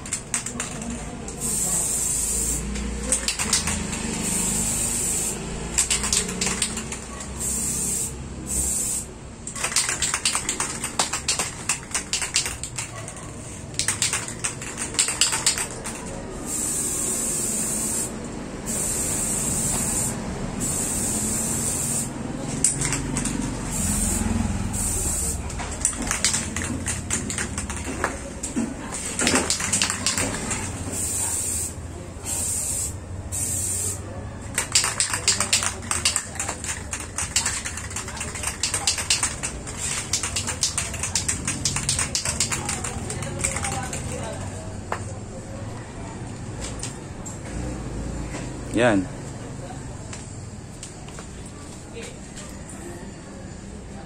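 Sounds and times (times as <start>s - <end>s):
spray paint can hissing: 0.1s - 12.9s, 13.7s - 28.0s, 29.0s - 44.1s
sharp clicks: 3.1s - 4.0s, 5.8s - 7.0s, 13.7s - 16.0s, 25.8s - 28.2s, 29.2s - 30.6s, 34.5s - 44.1s.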